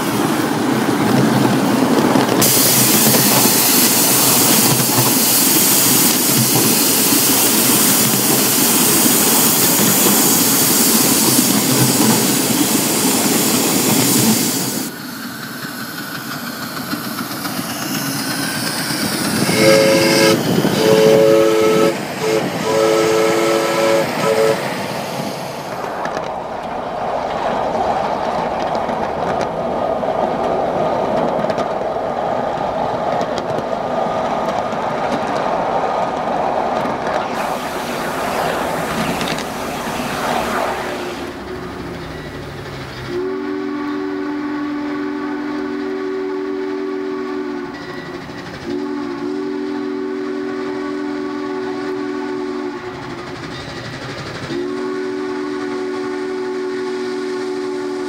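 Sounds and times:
steam locomotive running: 0.0 - 58.0
steam whistle blasts: 2.4 - 12.6, 19.0 - 25.8, 37.1 - 42.3, 43.0 - 53.2, 54.5 - 58.0
wheels rolling on track: 25.6 - 43.2.

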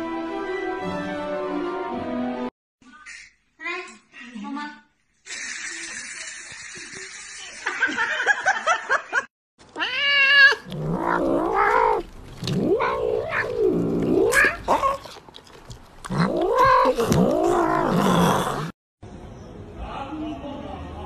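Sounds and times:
cat yowling: 9.7 - 15.1, 16.1 - 18.2.

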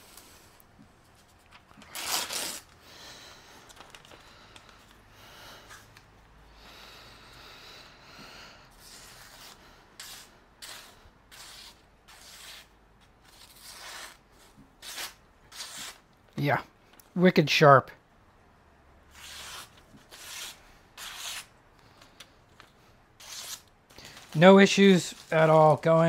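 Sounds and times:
knife slicing paper: 1.8 - 2.7, 8.8 - 16.0, 19.1 - 21.5, 23.2 - 26.0
paper rustling: 3.6 - 5.0.

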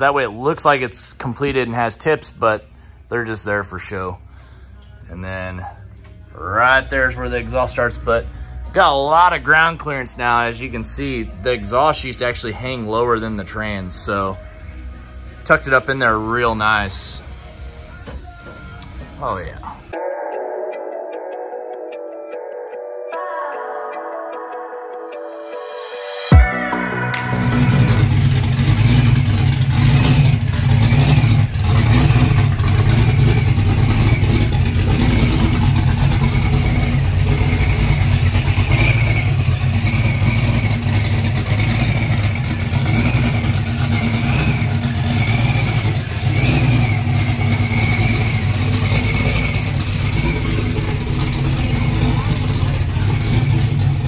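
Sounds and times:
car engine running: 26.3 - 54.0.

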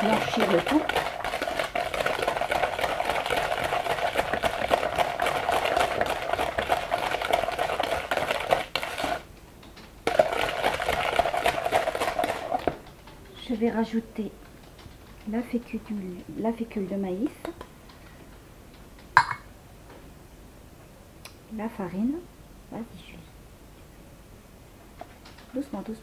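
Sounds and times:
hand whisk beating in bowl: 0.0 - 9.2, 10.1 - 12.8.

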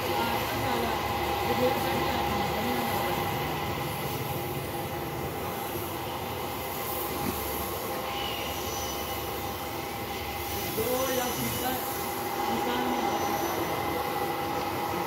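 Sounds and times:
paint spray gun hissing: 6.7 - 9.8, 10.4 - 14.2.

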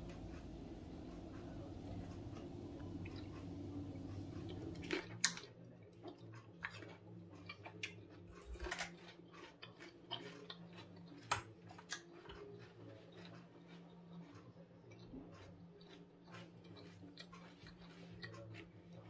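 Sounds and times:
low steady hum: 0.0 - 8.9
spoon stirring thick sauce: 0.0 - 19.0.

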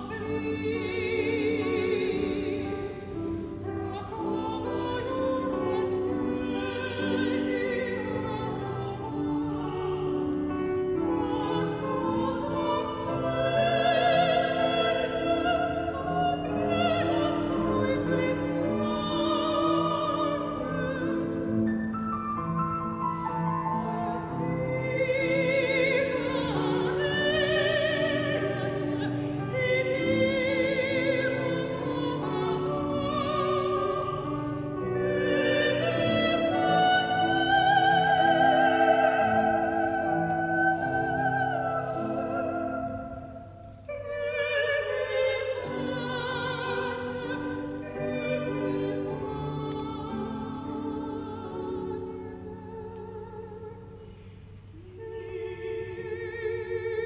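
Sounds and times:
grand piano: 0.0 - 57.0
operatic soprano singing: 0.0 - 57.0.

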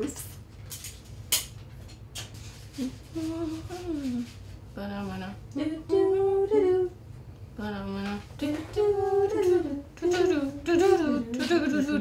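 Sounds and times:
woman humming: 2.8 - 4.3, 7.6 - 12.0.

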